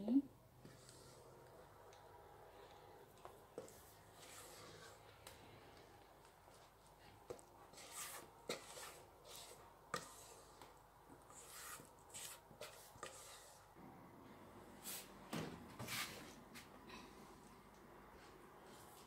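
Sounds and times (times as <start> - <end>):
spatula scraping batter: 3.2 - 5.4, 6.5 - 13.8.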